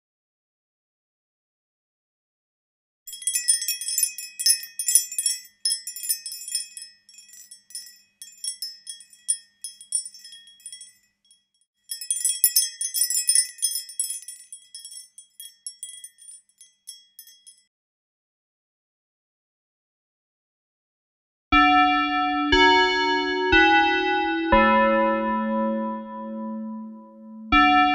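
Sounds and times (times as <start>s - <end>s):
glass wind chime tinkling: 3.1s - 17.7s.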